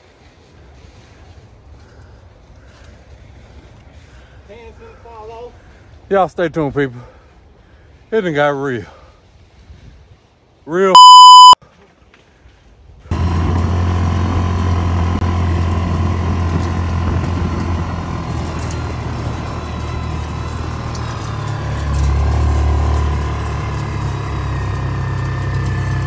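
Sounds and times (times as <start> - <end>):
off-road vehicle engine running: 13.1 - 26.0.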